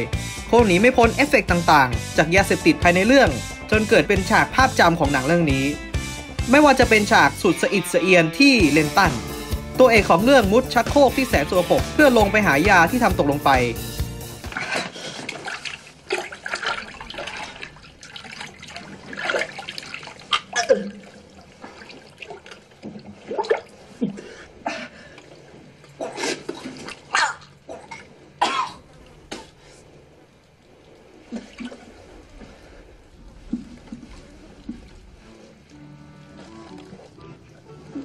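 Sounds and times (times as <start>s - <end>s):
water sloshing in toilet bowl: 14.3s - 38.0s
man coughing and gagging: 26.0s - 26.5s, 27.7s - 28.9s.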